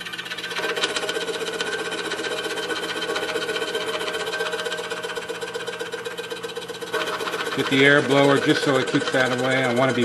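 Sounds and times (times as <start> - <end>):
scroll saw cutting wood: 0.0 - 10.0.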